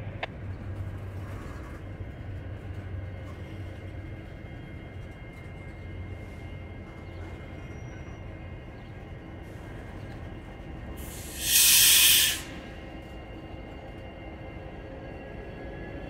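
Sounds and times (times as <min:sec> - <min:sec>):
freight train rumbling past: 0:00.0 - 0:16.0
loud hissing burst: 0:11.0 - 0:12.6.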